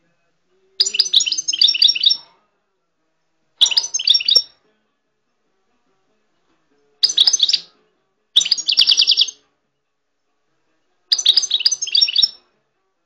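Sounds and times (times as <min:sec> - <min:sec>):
songbird twittering trills: 0:00.8 - 0:02.2, 0:03.6 - 0:04.5, 0:07.0 - 0:07.7, 0:08.4 - 0:09.4, 0:11.1 - 0:12.4.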